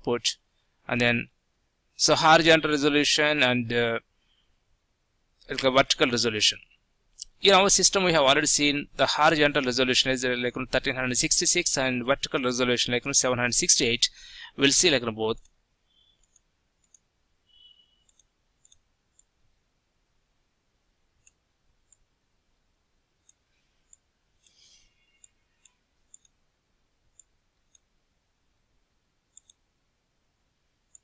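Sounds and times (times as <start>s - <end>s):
computer mouse clicks: 15.4s - 17.1s, 18.0s - 19.3s, 21.2s - 22.1s, 23.2s - 26.4s, 27.1s - 27.9s, 29.3s - 29.6s.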